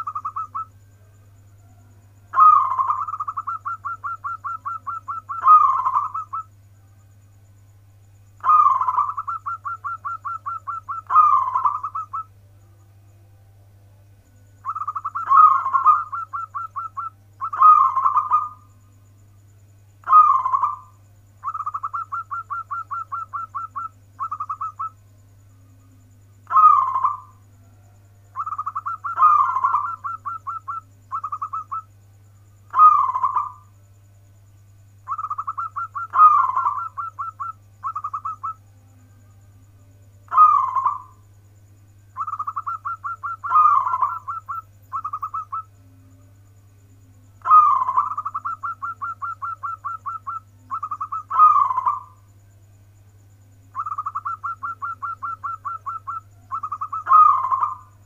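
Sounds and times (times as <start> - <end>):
dove rolling coo: 0.0 - 0.7, 2.2 - 6.5, 8.4 - 12.3, 14.6 - 18.7, 20.0 - 25.0, 26.4 - 27.4, 28.3 - 31.9, 32.7 - 33.6, 35.1 - 38.6, 40.3 - 41.2, 42.2 - 45.7, 47.4 - 52.2, 53.7 - 57.9.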